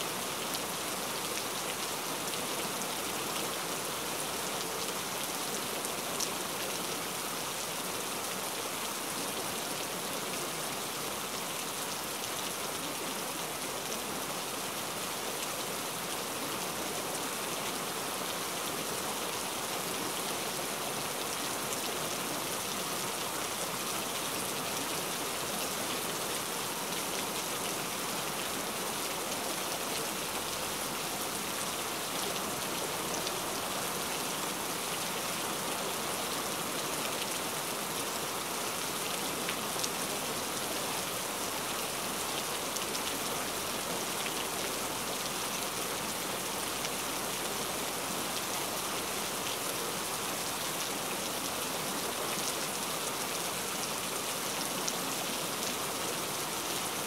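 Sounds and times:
steady rain: 0.0s - 57.0s.

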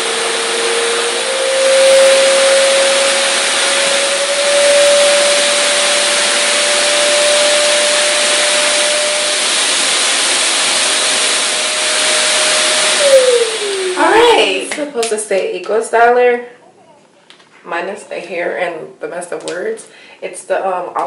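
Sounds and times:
electric blower motor whine: 0.0s - 14.9s.

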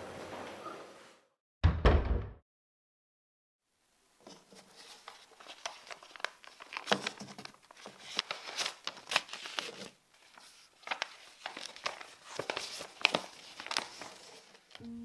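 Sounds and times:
paper rustling and crinkling: 4.2s - 14.9s.

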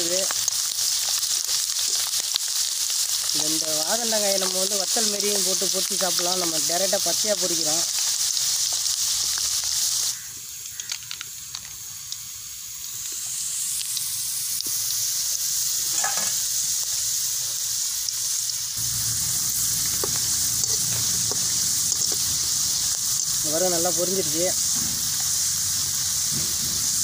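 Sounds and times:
deep-frying sizzle: 0.0s - 27.0s.

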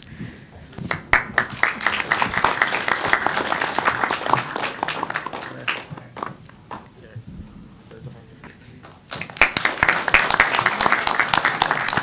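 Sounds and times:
audience applauding: 0.8s - 6.9s, 8.8s - 12.0s.

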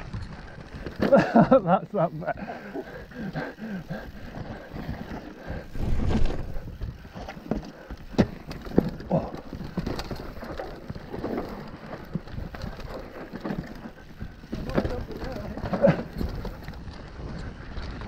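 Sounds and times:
bike tyres rumbling over dirt: 0.0s - 18.0s
bike knocking on rocks: 4.4s - 16.8s.

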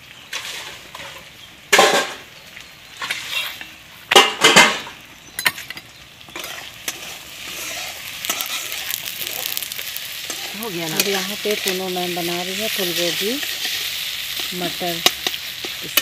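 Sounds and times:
bread sizzling on a griddle: 0.0s - 16.0s
knife scraping a griddle: 0.3s - 1.2s, 3.0s - 3.6s, 6.4s - 9.5s
metal clicks on a pan: 14.4s - 16.0s.

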